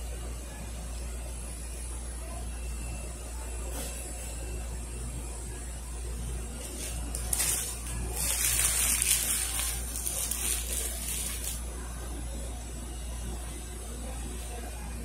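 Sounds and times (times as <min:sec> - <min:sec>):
paper wrapper crinkling: 0:06.6 - 0:11.6.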